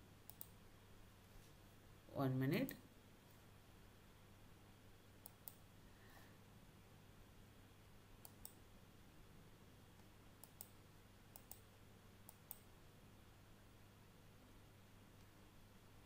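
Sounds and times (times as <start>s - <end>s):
faint low hum: 0.0s - 16.0s
computer mouse clicking: 0.2s - 0.6s, 5.2s - 5.6s, 8.2s - 8.6s, 10.4s - 12.7s.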